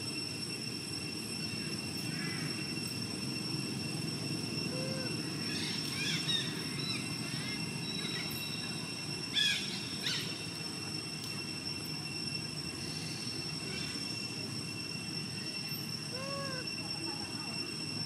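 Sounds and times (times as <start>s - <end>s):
high-pitched hum: 0.0s - 18.0s.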